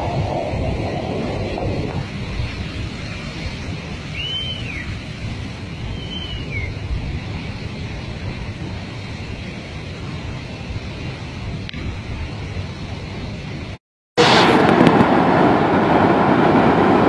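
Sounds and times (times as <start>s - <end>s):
flood torrent rushing: 0.0s - 17.0s
wind on microphone: 0.0s - 17.0s
high rising and falling whistles: 4.1s - 4.9s, 5.8s - 6.8s.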